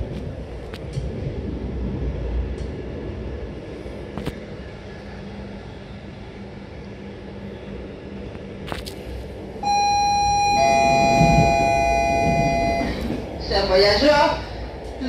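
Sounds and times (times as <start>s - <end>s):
electric train rumbling: 0.0s - 15.0s
two-tone public-address chime: 9.6s - 13.2s.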